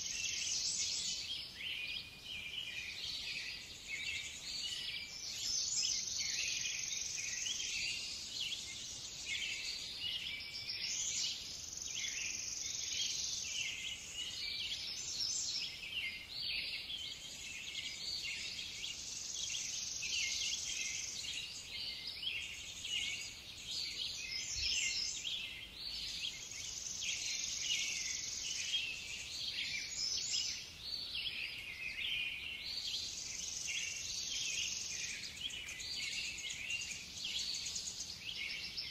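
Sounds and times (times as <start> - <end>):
birds chirping: 0.0 - 38.9.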